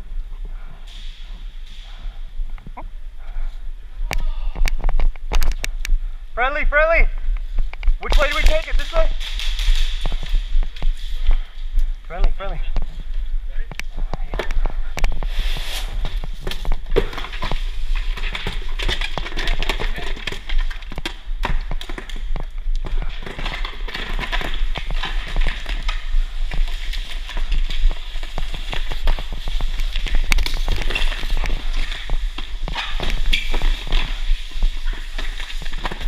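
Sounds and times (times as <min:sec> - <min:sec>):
steady low hum: 0:00.0 - 0:06.5.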